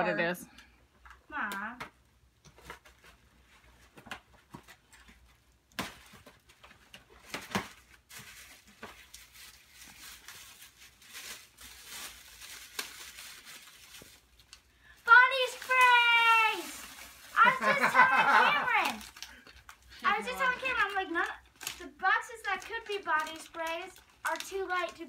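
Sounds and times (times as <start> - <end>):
paper rustling and crinkling: 2.5 - 25.0
paper ripping: 7.2 - 14.4, 15.1 - 19.4.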